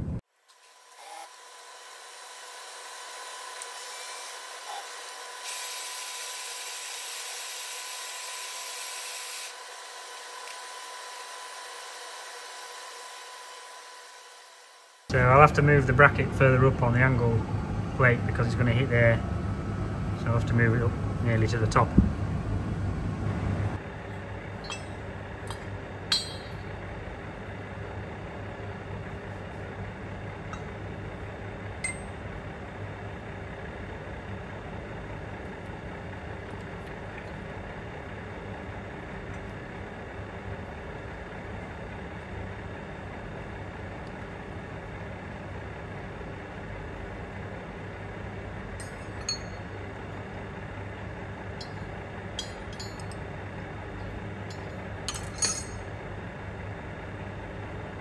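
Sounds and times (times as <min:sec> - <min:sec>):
workshop machinery hum: 0:00.0 - 0:58.0
metallic clinks of steel parts: 0:24.6 - 0:26.6, 0:48.8 - 0:49.7, 0:51.6 - 0:53.2, 0:54.5 - 0:55.9.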